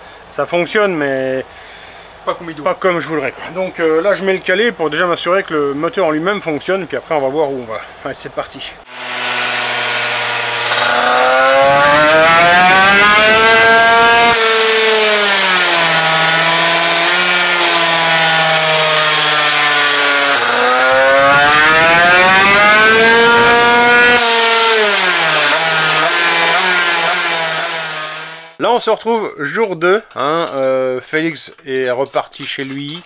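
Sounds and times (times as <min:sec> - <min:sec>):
scooter engine revving: 0:08.9 - 0:28.6.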